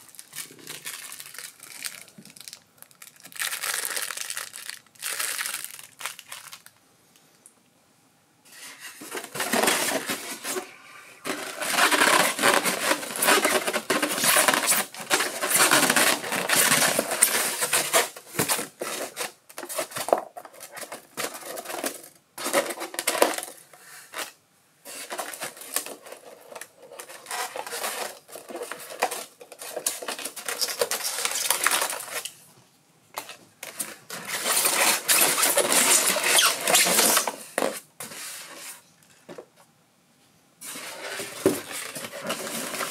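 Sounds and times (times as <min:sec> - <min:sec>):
foam packaging squeaking: 0:11.3 - 0:19.3, 0:27.0 - 0:32.3, 0:34.1 - 0:37.4.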